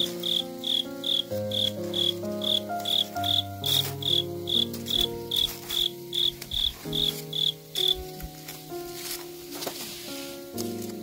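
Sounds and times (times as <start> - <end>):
cricket chirping: 0.0 - 8.2
soft background music: 0.0 - 11.0.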